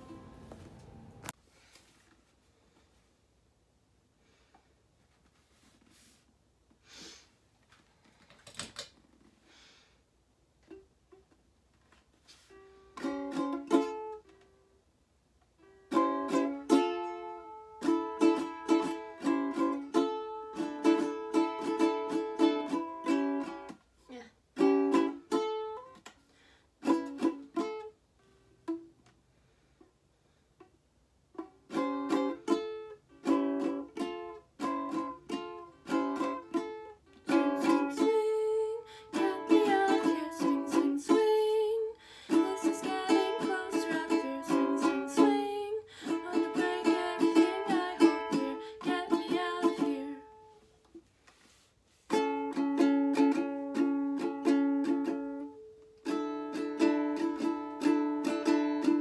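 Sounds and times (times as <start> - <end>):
ukulele strumming chords: 0.0 - 1.3, 12.5 - 14.6, 15.5 - 23.8, 24.5 - 26.1, 26.8 - 29.0, 31.3 - 50.6, 52.0 - 59.0.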